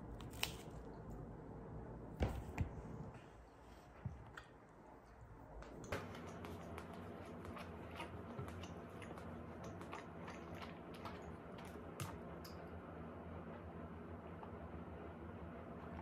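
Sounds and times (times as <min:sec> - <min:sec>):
faint low hum: 0:00.0 - 0:16.0
person chewing with clicks: 0:05.7 - 0:12.6.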